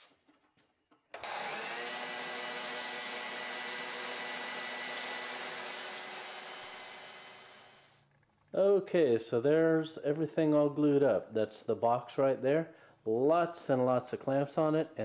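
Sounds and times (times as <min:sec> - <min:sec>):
sander motor whine: 0:01.2 - 0:07.9.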